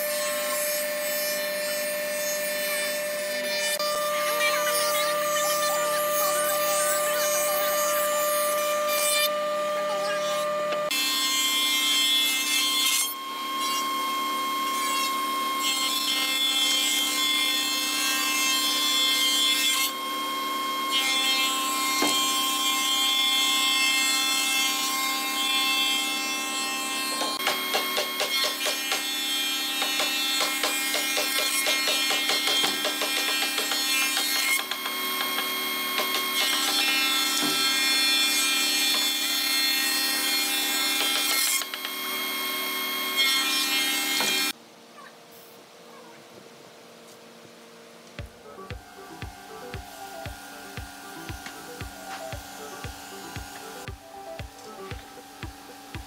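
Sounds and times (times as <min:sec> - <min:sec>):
wood shaper motor whine: 0:00.0 - 0:44.6, 0:48.2 - 0:56.0
rasping wood cutting: 0:48.2 - 0:56.0.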